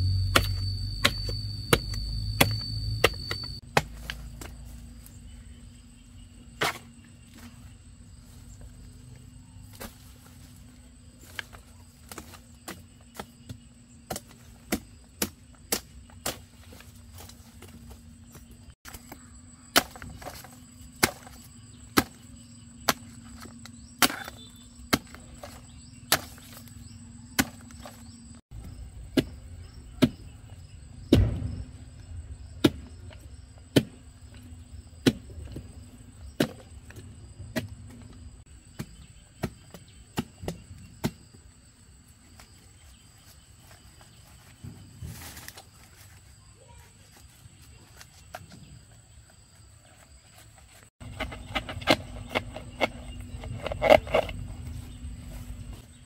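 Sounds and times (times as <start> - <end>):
blade chopping bamboo: 0.1 - 4.5, 18.9 - 28.0, 51.0 - 54.5.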